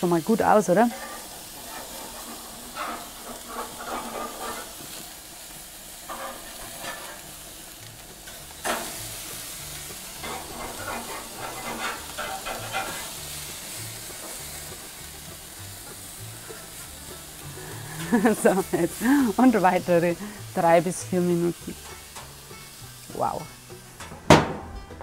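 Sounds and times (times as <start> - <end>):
meat sizzling on a grill: 0.0 - 24.2
metal spatula scraping a grate: 0.7 - 20.4.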